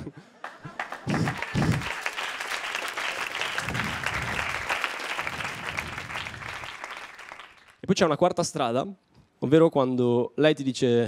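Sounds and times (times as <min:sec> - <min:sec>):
audience applauding: 0:00.4 - 0:07.8.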